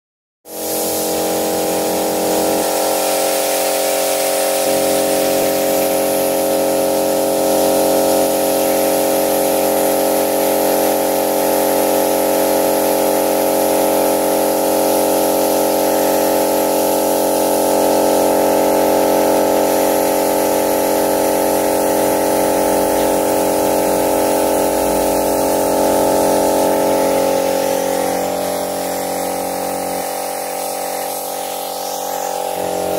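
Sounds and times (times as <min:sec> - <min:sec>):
spray gun hissing: 0:00.5 - 0:32.9
mechanical hum: 0:21.2 - 0:32.9.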